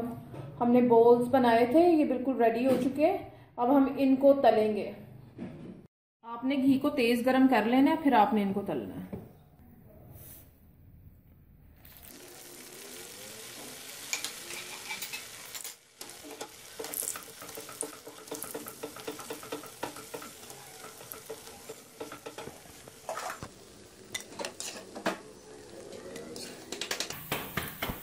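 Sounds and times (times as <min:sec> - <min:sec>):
deep-frying sizzle with crackling: 0:11.8 - 0:28.0
tongs clicking against pan: 0:16.3 - 0:22.5.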